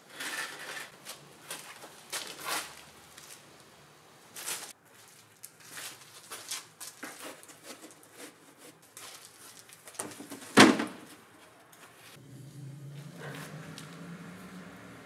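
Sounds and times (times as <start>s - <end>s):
wood knocking and scraping on wood: 6.9s - 12.0s
plywood sheet thudding down: 10.0s - 11.1s.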